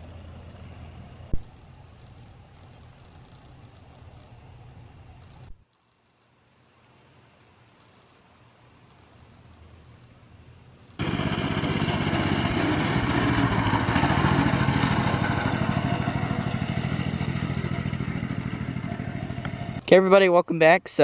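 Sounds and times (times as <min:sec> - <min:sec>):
crickets chirping: 0:00.0 - 0:21.0
mini bike engine running: 0:11.0 - 0:19.8.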